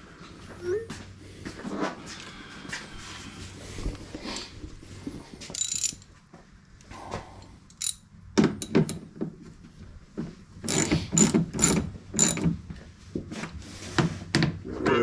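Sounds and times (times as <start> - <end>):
ratchet wrench clicking: 5.5 - 6.0, 7.7 - 8.0, 10.7 - 12.5.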